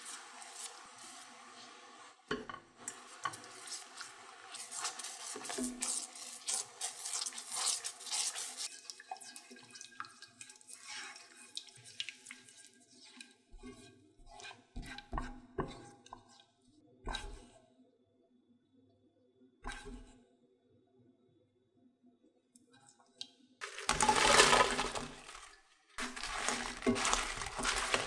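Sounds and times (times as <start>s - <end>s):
sauce bubbling in a pan: 0.0s - 16.5s
spatula stirring sticky sauce: 0.0s - 17.6s, 23.6s - 28.0s.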